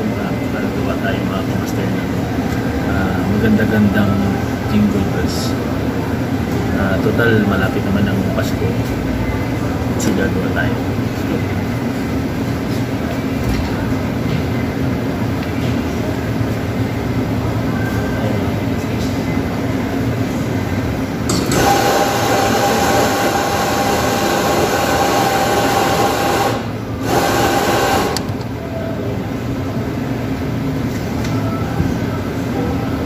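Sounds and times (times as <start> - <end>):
steady low hum: 0.0 - 33.0
espresso grinder whining: 21.3 - 28.4.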